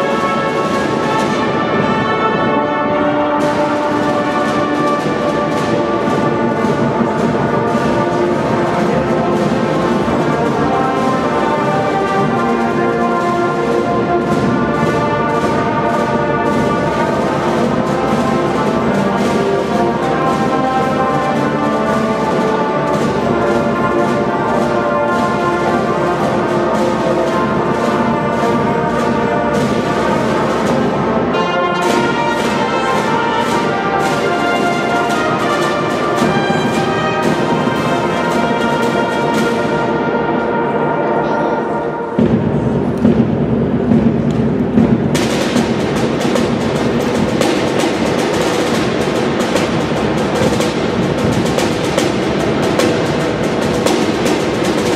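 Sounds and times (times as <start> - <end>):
rapid drum strokes: 0.0 - 40.7, 42.1 - 54.9
brass instruments melody: 0.0 - 54.9.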